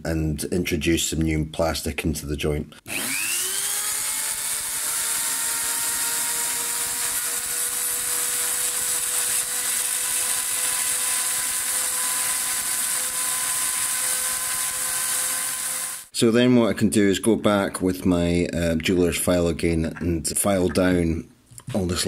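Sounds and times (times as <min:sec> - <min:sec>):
rotary tool whining: 0:02.9 - 0:16.1.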